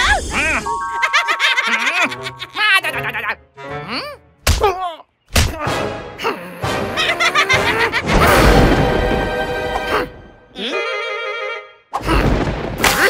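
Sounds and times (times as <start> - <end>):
cartoon music: 0.0 - 4.2.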